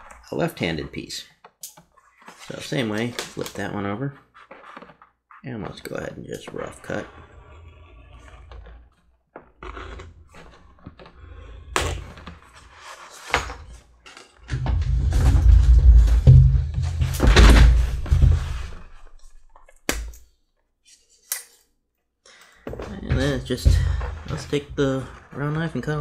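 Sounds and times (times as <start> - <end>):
awl scratching leather: 4.2 - 13.2.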